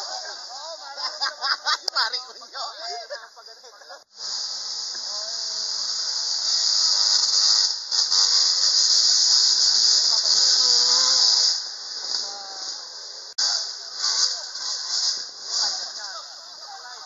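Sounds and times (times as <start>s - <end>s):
high-pitched hiss: 0.0s - 17.0s
dirt bike engines revving: 8.9s - 17.0s.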